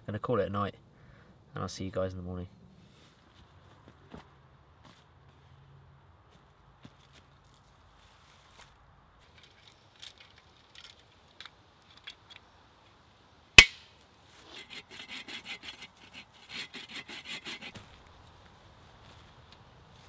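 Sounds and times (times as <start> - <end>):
rasping strokes on wood: 14.5 - 17.8.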